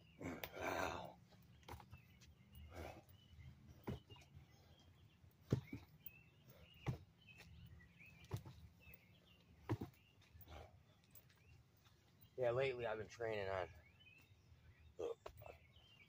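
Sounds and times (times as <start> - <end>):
birds chirping: 0.0 - 16.0
body thudding against tree trunk: 3.8 - 4.3, 5.4 - 5.9, 6.8 - 7.5, 8.2 - 8.7, 9.6 - 10.2.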